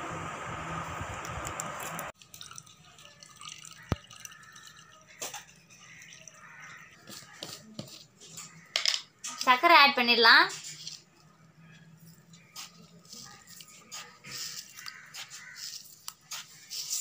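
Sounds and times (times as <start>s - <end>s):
water pouring into a steel bowl: 2.2s - 7.1s
faint dripping: 2.2s - 7.4s.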